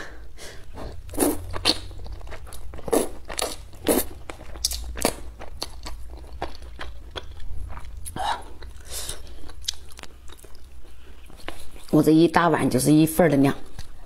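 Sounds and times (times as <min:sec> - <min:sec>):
low steady hum: 0:00.0 - 0:14.0
chewing smacks: 0:01.2 - 0:11.9.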